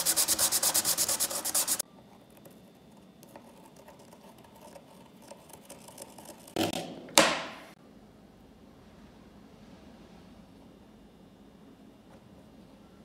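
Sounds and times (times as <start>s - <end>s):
pencil scratching on steel: 0.0s - 1.8s, 3.2s - 6.6s.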